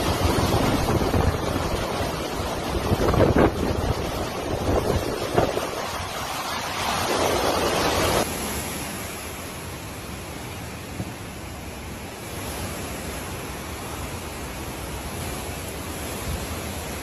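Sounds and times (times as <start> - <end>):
wind buffeting microphone: 0.0 - 8.3
rushing floodwater: 0.0 - 17.0
steady wind hiss: 0.0 - 17.0.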